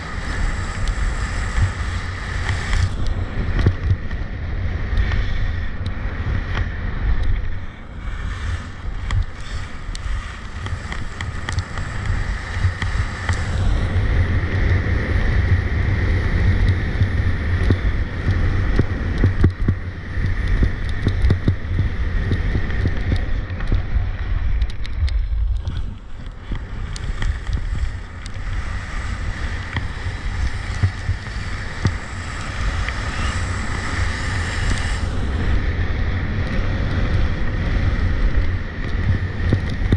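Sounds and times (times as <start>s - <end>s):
wind rumbling on microphone: 0.0s - 39.9s
skis scraping on ice: 7.5s - 14.0s.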